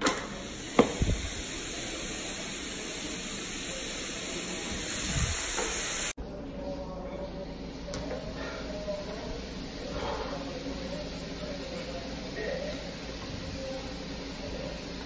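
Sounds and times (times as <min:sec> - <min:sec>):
steady hiss: 0:00.0 - 0:06.2, 0:07.8 - 0:15.0.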